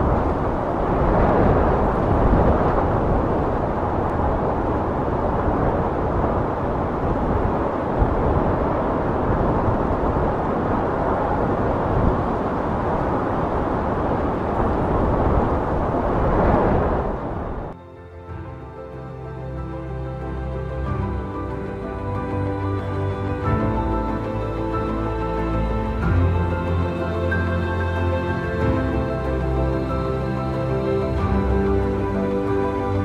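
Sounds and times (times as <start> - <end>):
waves breaking on a beach: 0.0 - 33.0.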